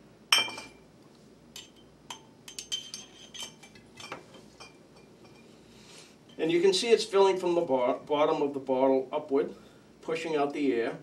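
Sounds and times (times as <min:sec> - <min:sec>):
glass bottles clinking: 0:00.3 - 0:00.8, 0:01.6 - 0:05.5.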